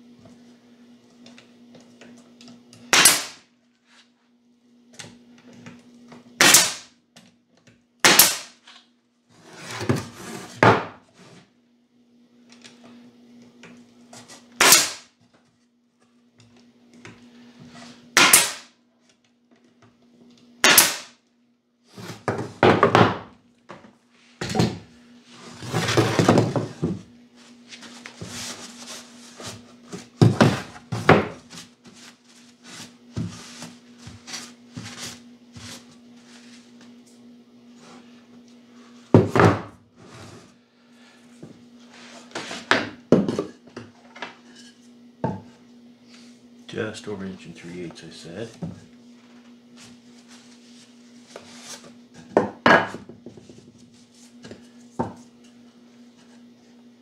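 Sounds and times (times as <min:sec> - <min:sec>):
faint steady hum: 0:00.0 - 0:57.0
pneumatic stapler shots: 0:02.9 - 0:03.4, 0:06.4 - 0:06.9, 0:08.0 - 0:08.6, 0:14.6 - 0:15.1, 0:18.2 - 0:18.7, 0:20.6 - 0:21.1
boards scraping and clattering: 0:25.4 - 0:27.1.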